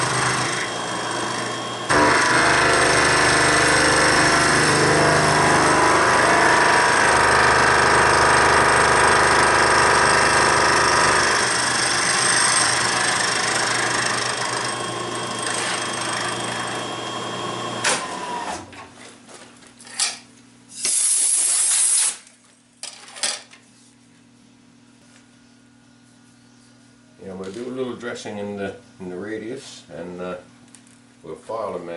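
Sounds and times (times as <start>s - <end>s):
milling machine cutting metal: 0.0s - 18.3s
air hiss: 20.7s - 22.2s.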